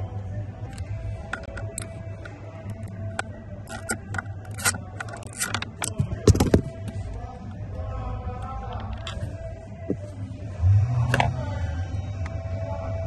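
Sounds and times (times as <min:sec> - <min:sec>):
hand tools clicking and scraping: 0:00.7 - 0:07.1, 0:08.6 - 0:10.0.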